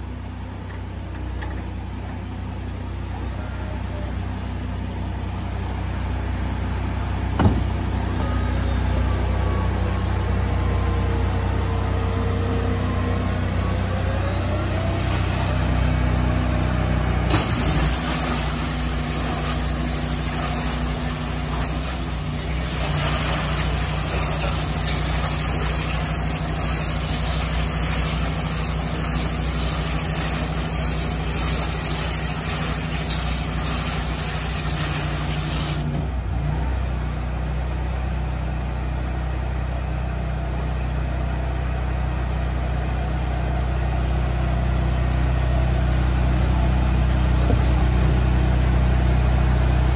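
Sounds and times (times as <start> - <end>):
engine droning: 0.0 - 49.9
water spray jets hissing: 17.3 - 35.9.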